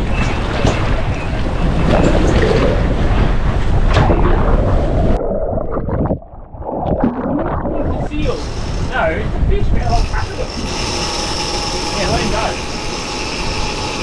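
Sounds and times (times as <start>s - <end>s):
water splashing alongside boat: 0.0s - 10.5s
wind buffeting microphone: 0.0s - 10.8s
underwater gurgling and bubbling: 1.0s - 8.9s.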